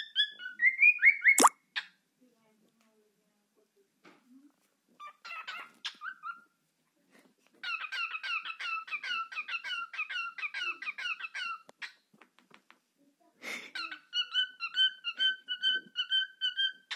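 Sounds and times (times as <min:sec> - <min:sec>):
cockatiel chirping and warbling: 0:00.0 - 0:02.0, 0:05.0 - 0:06.5, 0:07.6 - 0:12.0, 0:13.8 - 0:16.9.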